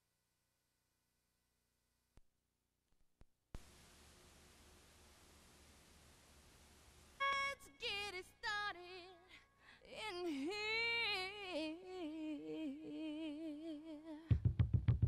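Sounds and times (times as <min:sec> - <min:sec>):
woman singing unaccompanied: 0:07.2 - 0:14.3.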